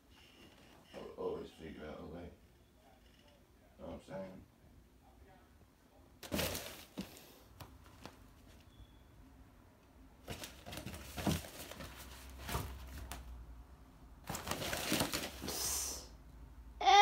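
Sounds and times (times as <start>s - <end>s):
fabric tunnel rustling and knocking: 10.2s - 13.2s.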